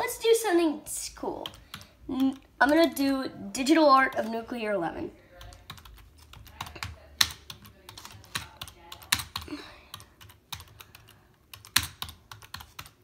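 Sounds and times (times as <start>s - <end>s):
typing on computer keyboard: 1.4s - 3.0s, 5.3s - 13.0s.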